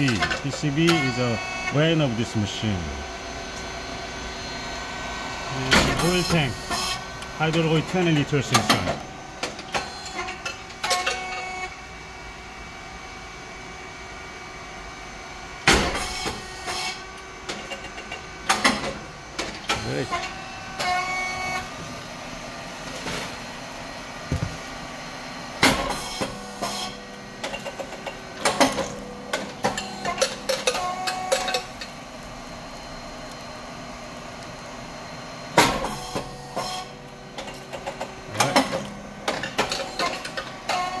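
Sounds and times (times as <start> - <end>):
pump and fan humming: 0.0 - 41.0
rice cake machine bang: 5.6 - 6.9, 15.6 - 16.5, 35.5 - 36.9.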